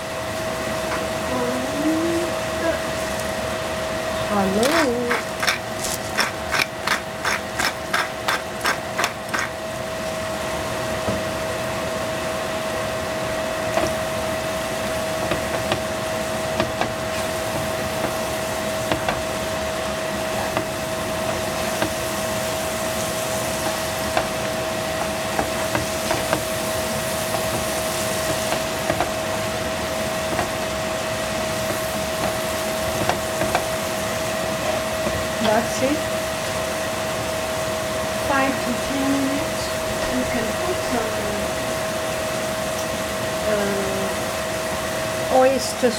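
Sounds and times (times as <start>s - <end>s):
steady tonal hum: 0.0s - 45.9s
seasoning shaker clicking: 4.6s - 9.6s.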